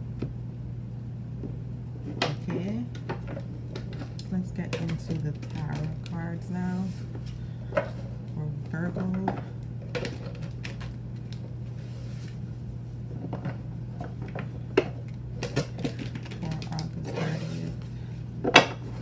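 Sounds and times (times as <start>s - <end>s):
low hum: 0.0s - 19.0s
cards shuffling: 15.4s - 17.8s.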